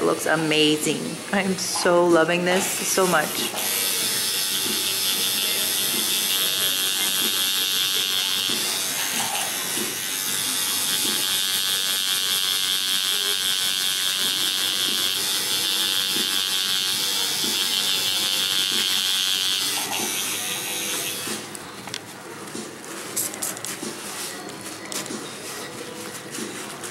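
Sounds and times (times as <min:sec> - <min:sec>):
tattoo machine buzzing: 0:02.5 - 0:21.5.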